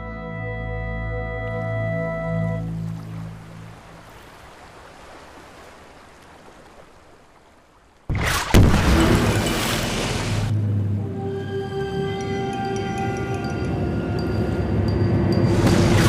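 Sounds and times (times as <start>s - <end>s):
faint water ambience: 0.0s - 16.0s
shells exploding in water: 8.1s - 10.5s.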